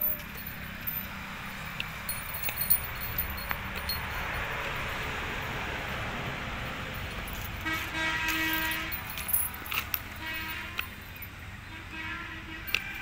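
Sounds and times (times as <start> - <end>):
vehicle horn tone: 7.6 - 9.0, 10.1 - 11.0, 11.6 - 13.0.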